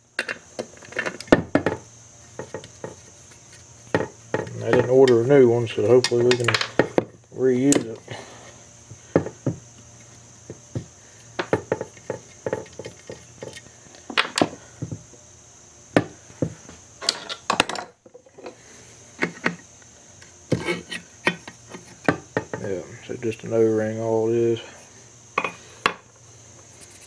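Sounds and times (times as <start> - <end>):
tools tapping metal parts: 6.0 - 6.9.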